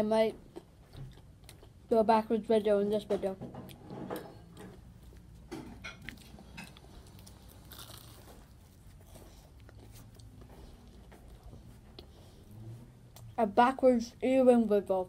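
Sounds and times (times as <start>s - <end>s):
chewing crunchy pie crust: 0.3s - 2.0s, 3.7s - 13.4s.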